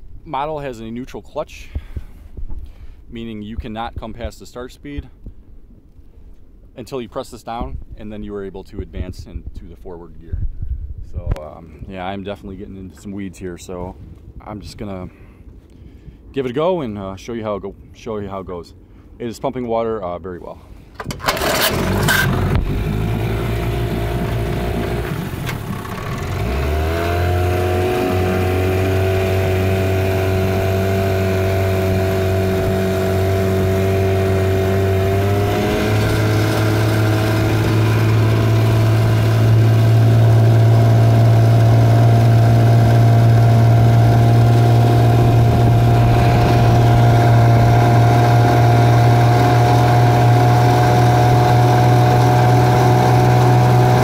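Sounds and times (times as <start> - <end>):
outboard motor running: 21.0 - 54.0.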